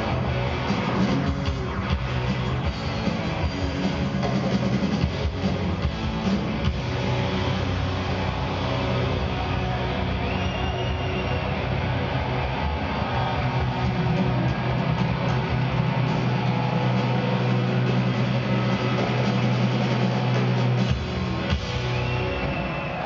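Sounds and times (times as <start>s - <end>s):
held bass notes: 0.0s - 10.4s
electric guitar: 0.0s - 23.0s.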